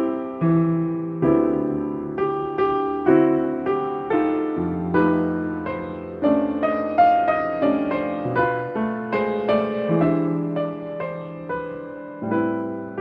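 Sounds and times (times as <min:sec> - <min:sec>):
solo piano: 0:00.0 - 0:13.0.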